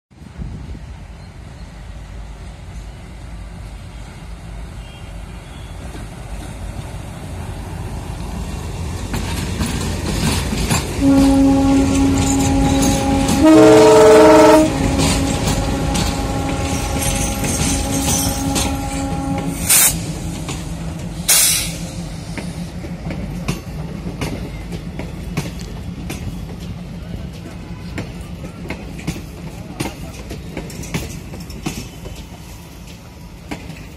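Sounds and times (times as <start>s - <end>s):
diesel locomotives rumbling: 0.2s - 33.9s
locomotive horn blast: 11.0s - 21.8s.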